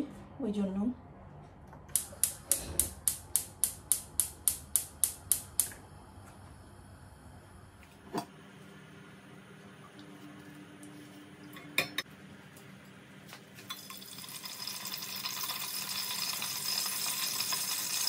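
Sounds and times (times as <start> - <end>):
gas hob igniter clicking: 1.9 - 5.8.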